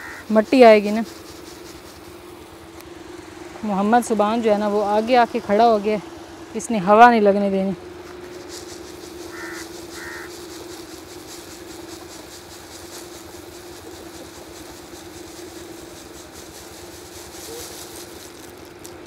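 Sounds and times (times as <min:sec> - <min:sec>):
electric fan humming: 0:00.0 - 0:19.0
grain pattering onto cloth: 0:08.0 - 0:19.0.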